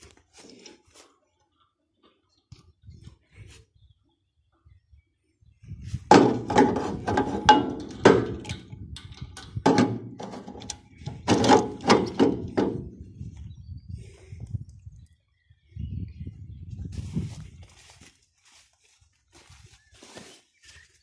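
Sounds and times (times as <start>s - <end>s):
metal cap knocking and clanking: 6.1s - 12.9s.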